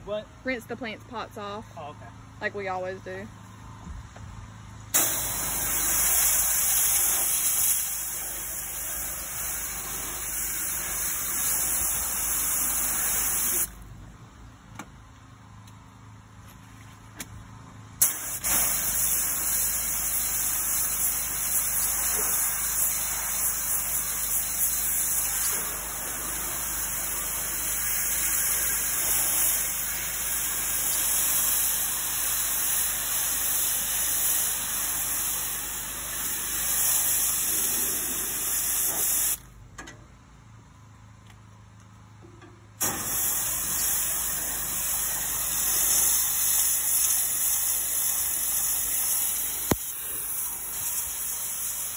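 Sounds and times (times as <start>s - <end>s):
pressure washer motor hum: 4.9s - 13.8s, 18.0s - 39.4s, 42.8s - 51.9s
pressure washer spraying water: 5.0s - 13.8s, 18.0s - 39.4s, 42.8s - 51.9s.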